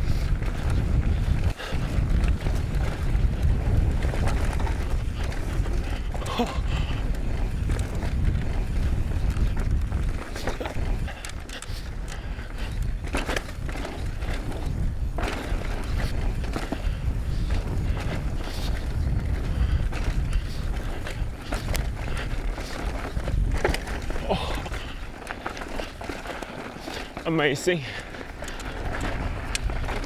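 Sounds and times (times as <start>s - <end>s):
bike tyres rolling over rock: 0.0s - 30.0s
wind rumble on microphone: 0.0s - 30.0s
bike clacks and knocks: 0.2s - 27.3s.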